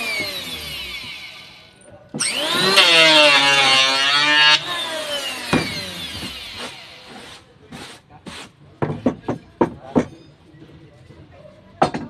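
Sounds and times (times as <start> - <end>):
electric planer whining: 0.0 - 7.3.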